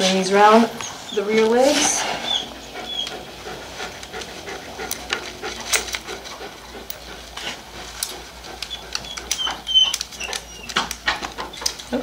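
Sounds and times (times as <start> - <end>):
dog panting: 0.1 - 12.0
harness buckles clicking: 4.0 - 12.0.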